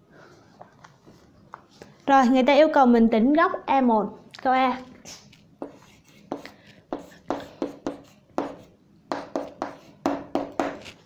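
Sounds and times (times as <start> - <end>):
pen writing strokes: 5.6 - 11.0.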